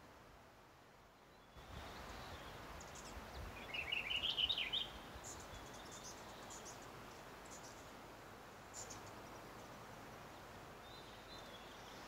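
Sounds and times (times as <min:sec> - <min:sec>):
steady outdoor hiss: 0:00.0 - 0:12.0
songbird warbling: 0:02.1 - 0:06.8.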